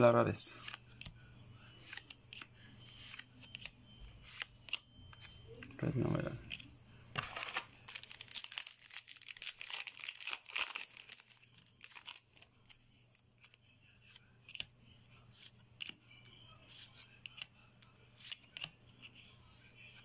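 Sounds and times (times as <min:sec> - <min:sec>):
trading cards snapping and rustling: 0:06.4 - 0:12.7.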